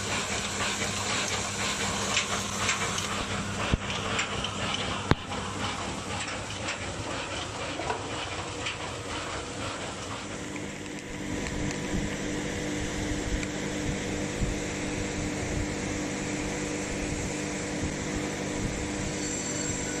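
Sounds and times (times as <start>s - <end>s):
packaging machine humming: 0.0s - 20.0s
steady machine tone: 10.4s - 20.0s.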